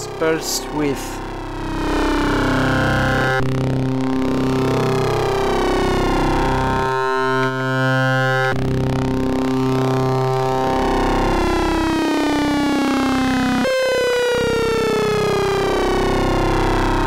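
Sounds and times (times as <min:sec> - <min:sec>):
synthesizer drone: 0:00.0 - 0:17.0.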